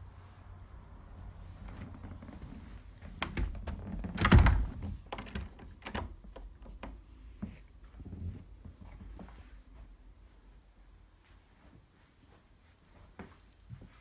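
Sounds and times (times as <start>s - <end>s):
door knocks and clicks: 3.2s - 7.0s
door shutting thunk: 3.3s - 4.8s.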